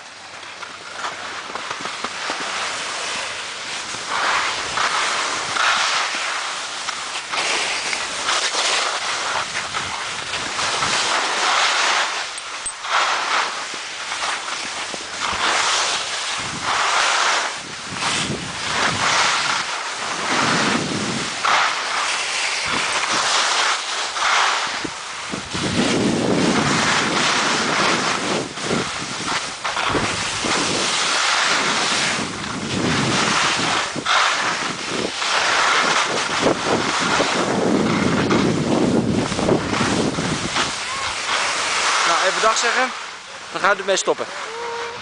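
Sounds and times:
skis scraping over snow: 0:00.0 - 0:45.0
wind buffeting microphone: 0:16.3 - 0:16.8, 0:17.5 - 0:21.5, 0:24.7 - 0:41.9.

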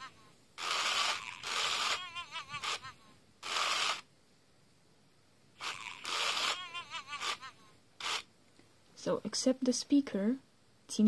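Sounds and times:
toy high-pitched chirps: 0:00.6 - 0:04.0.

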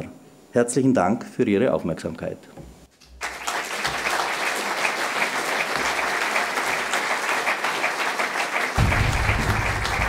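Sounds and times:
audience applauding: 0:03.2 - 0:10.0.

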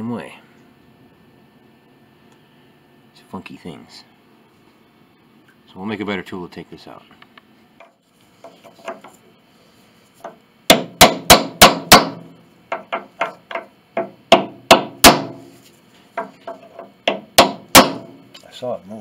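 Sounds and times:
hammer striking wooden block: 0:10.2 - 0:15.5, 0:16.2 - 0:18.2.

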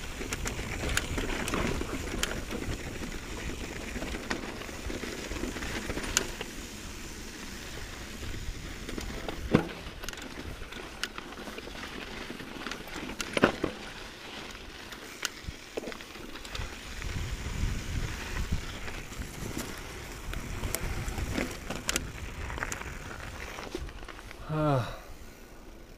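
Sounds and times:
bike rattling over rocks: 0:00.0 - 0:25.9
bike tyres on gravel trail: 0:00.0 - 0:25.9
wind on microphone: 0:16.9 - 0:21.5.

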